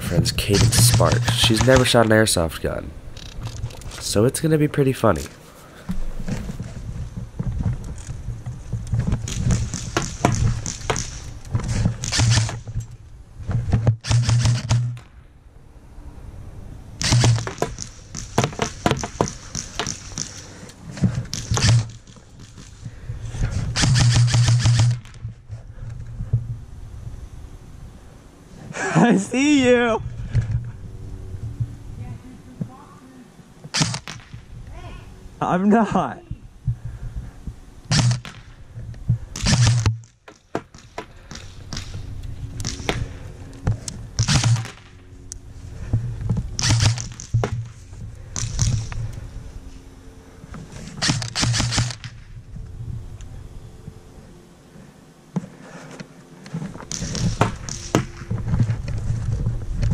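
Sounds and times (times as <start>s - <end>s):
low mechanical hum: 0.0s - 59.9s
muffled thuds and rustling: 5.8s - 15.0s, 17.0s - 26.6s, 55.3s - 59.9s
airsoft rifle bursts: 23.8s - 25.0s.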